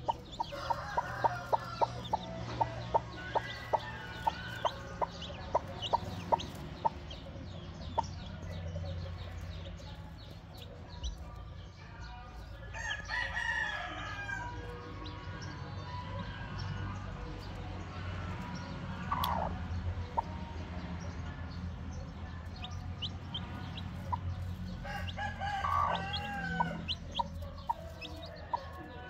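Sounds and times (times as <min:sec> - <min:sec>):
drawn-out chicken call: 0:00.0 - 0:07.0, 0:24.8 - 0:28.8
chicks peeping: 0:00.0 - 0:29.0.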